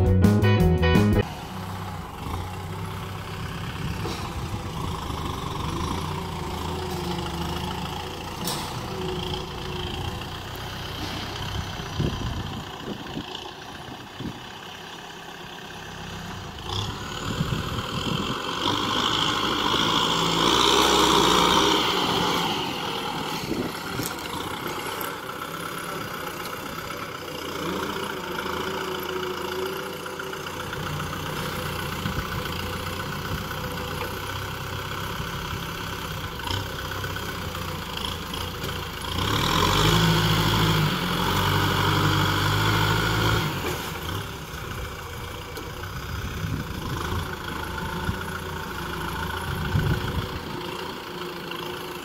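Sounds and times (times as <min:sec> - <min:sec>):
tractor diesel engine running: 0:00.0 - 0:52.0
blade pushing soil: 0:16.6 - 0:34.8.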